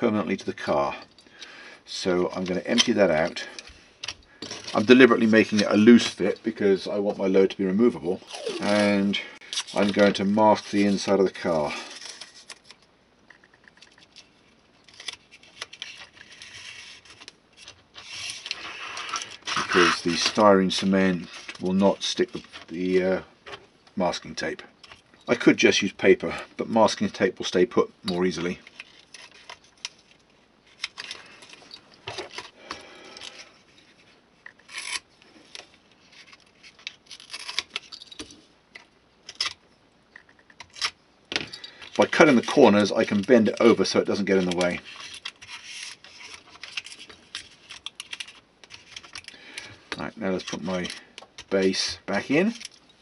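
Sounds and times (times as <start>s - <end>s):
tape rubbing and scraping: 4.5s - 12.8s, 13.9s - 22.8s, 33.2s - 37.9s, 42.0s - 49.3s
handling scrapes: 14.0s - 23.1s.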